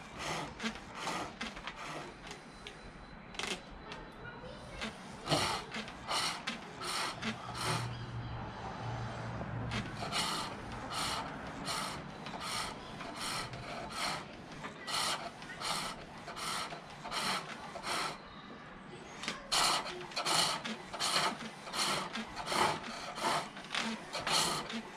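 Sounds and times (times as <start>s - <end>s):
lathe tool scraping wood: 0.0s - 2.2s, 4.8s - 7.9s, 9.6s - 18.2s, 19.4s - 24.9s.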